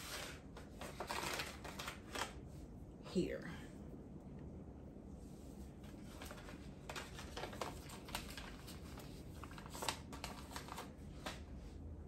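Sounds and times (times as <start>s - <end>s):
paper seed packet rustling: 0.0s - 2.4s, 5.9s - 11.4s.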